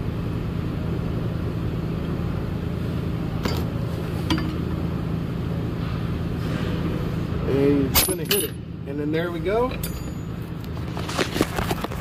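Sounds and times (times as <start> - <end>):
steady low hum: 0.0 - 12.0
metal tool clinking: 8.0 - 8.6, 9.7 - 10.4.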